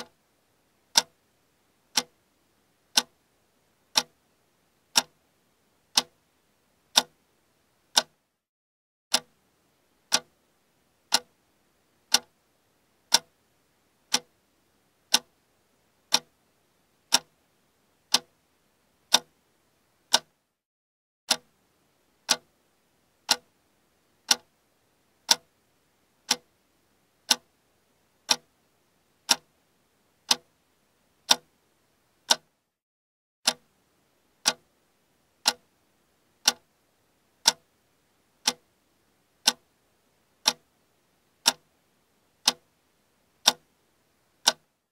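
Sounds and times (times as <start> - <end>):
clock ticking: 0.9 - 1.2, 1.9 - 2.2, 2.9 - 3.2, 3.9 - 4.2, 4.9 - 5.2, 5.9 - 6.2, 6.9 - 7.2, 7.9 - 8.3, 9.1 - 9.4, 10.1 - 10.4, 11.1 - 11.4, 12.1 - 12.4, 13.1 - 13.4, 14.1 - 14.4, 15.1 - 15.4, 16.0 - 16.4, 17.1 - 17.4, 18.1 - 18.4, 19.1 - 19.3, 20.1 - 20.4, 21.3 - 21.5, 22.2 - 22.5, 23.3 - 23.5, 24.2 - 24.5, 25.3 - 25.5, 26.3 - 26.5, 27.3 - 27.6, 28.2 - 28.5, 29.2 - 29.5, 30.3 - 30.5, 31.2 - 31.5, 32.2 - 32.5, 33.5 - 33.7, 34.4 - 34.7, 35.4 - 35.7, 36.4 - 36.7, 37.4 - 37.7, 38.4 - 38.7, 39.4 - 39.7, 40.4 - 40.7, 41.4 - 41.7, 42.4 - 42.8, 43.4 - 43.7, 44.4 - 44.8.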